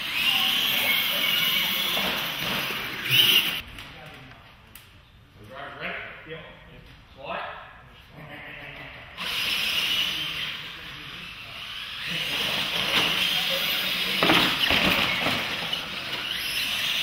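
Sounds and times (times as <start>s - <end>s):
electric motors and tyres hissing: 0.0s - 3.6s, 9.2s - 17.0s.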